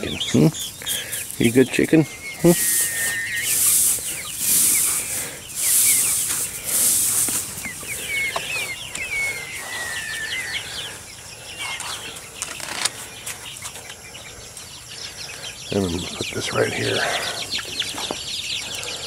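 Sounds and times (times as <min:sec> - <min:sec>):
rice hulls rustling and pattering: 0:00.0 - 0:08.8
chicks peeping: 0:00.0 - 0:19.0.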